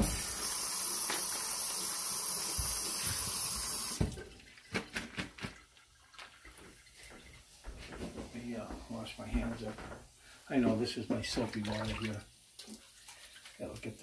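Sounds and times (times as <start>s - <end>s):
light knocks and clatters: 7.2s - 10.1s.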